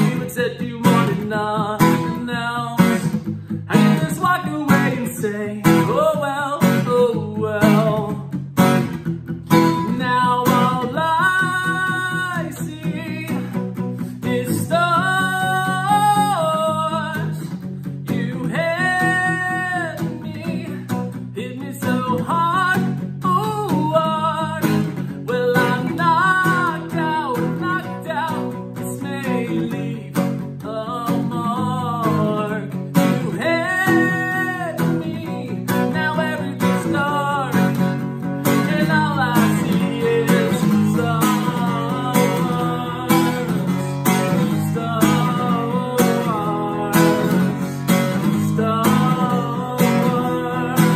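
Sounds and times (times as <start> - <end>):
man singing: 0.0 - 50.9
strummed acoustic guitar: 0.0 - 50.9.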